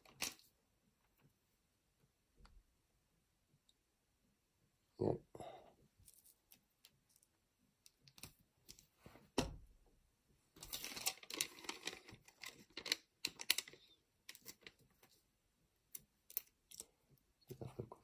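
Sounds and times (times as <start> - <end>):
plastic crinkling and rustling: 10.6 - 15.0.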